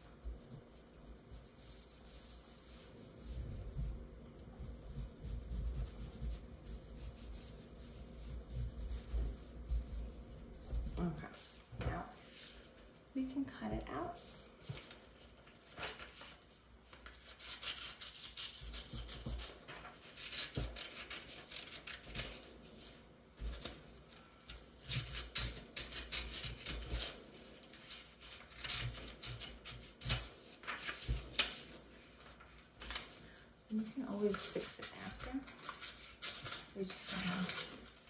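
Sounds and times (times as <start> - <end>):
paper rustling: 14.2 - 38.0.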